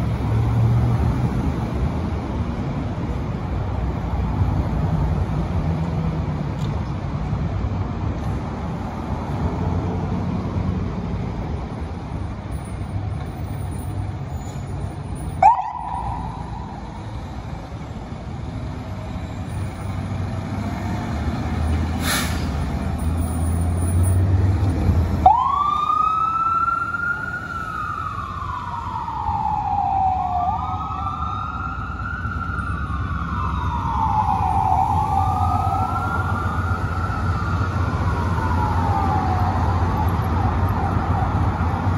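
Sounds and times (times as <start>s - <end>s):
engine and traffic rumble: 0.0s - 41.9s
fire engine siren: 14.7s - 21.8s, 23.0s - 41.9s.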